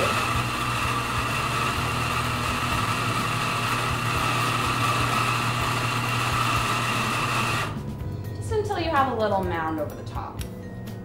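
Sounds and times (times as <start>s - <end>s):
coffee grinder running: 0.0s - 7.9s.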